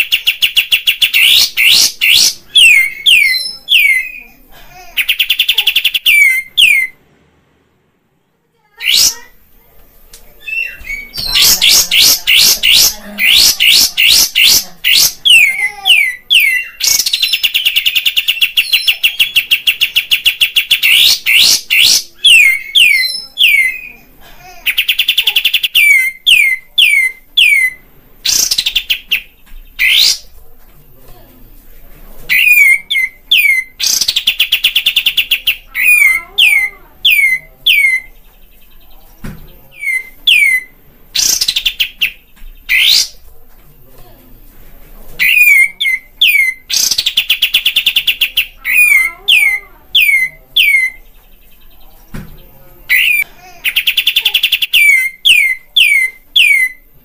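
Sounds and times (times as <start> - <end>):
bird chattering trills: 10.5 - 24.0, 39.7 - 43.2, 45.2 - 51.1.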